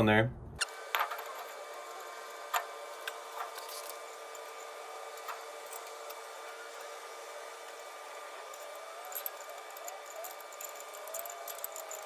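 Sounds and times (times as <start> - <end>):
metal clinks and taps: 7.7 - 12.0.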